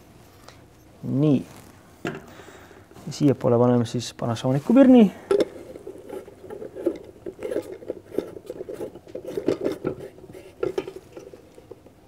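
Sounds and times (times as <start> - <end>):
bulb scraping in socket: 5.3 - 11.8.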